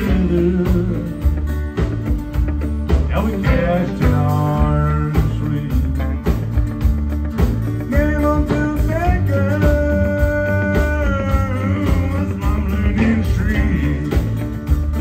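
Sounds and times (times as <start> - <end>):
person singing: 0.0 - 1.5, 3.0 - 6.6, 7.8 - 14.5
acoustic guitar: 0.0 - 15.0
drums: 0.0 - 15.0
electric guitar: 0.0 - 15.0.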